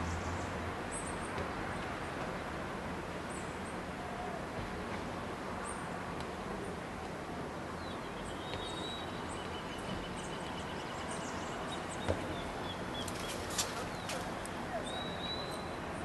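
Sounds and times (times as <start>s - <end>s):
outdoor background noise: 0.0s - 16.0s
faint high bird chirps: 7.9s - 15.8s.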